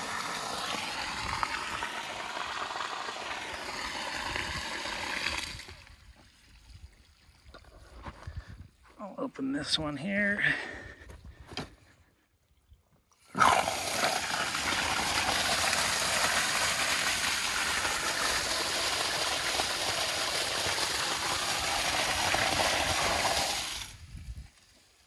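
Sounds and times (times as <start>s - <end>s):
water splashing onto dirt: 0.0s - 6.0s, 13.3s - 24.1s
water gushing from a valve: 0.0s - 8.8s, 13.2s - 25.0s.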